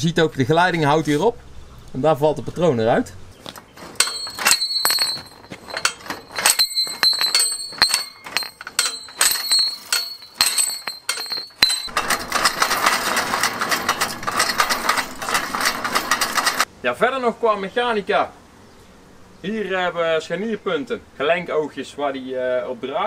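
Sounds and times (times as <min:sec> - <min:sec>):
metal clicking and clinking: 0:03.6 - 0:16.7
dense rapid rattle: 0:03.8 - 0:16.7
steady high ringing tone: 0:04.0 - 0:12.5.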